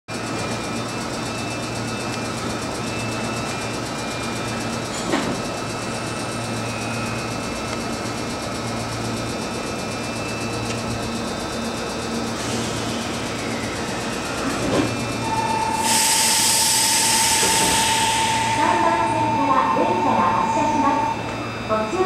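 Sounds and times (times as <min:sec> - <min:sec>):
electric train equipment hum: 0:00.1 - 0:22.0
faint steady tones: 0:15.2 - 0:22.0.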